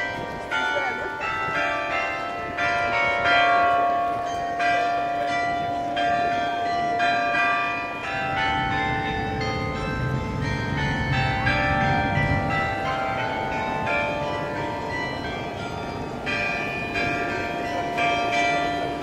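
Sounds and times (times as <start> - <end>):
carillon bells ringing a tune: 0.0 - 19.0.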